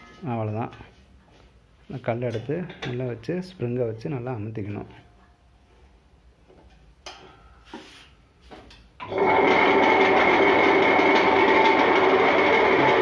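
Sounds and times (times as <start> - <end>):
wet grinder whirring: 9.0 - 13.0.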